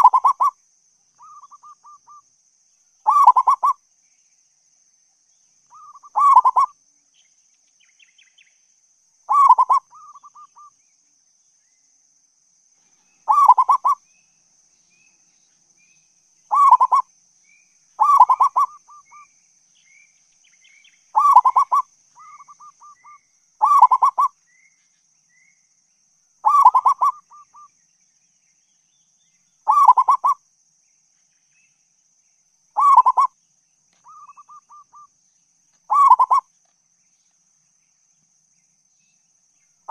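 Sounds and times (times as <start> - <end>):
dove cooing: 0.0 - 0.5, 3.1 - 3.8, 5.8 - 6.7, 9.3 - 10.7, 13.3 - 14.0, 16.5 - 17.0, 18.0 - 19.2, 21.2 - 24.3, 26.4 - 27.6, 29.7 - 30.4, 32.8 - 33.3, 35.9 - 36.5.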